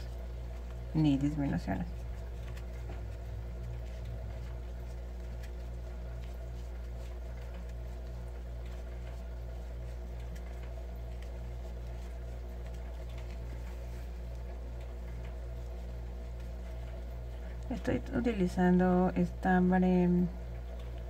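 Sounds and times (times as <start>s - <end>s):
low throbbing hum: 0.0s - 21.0s.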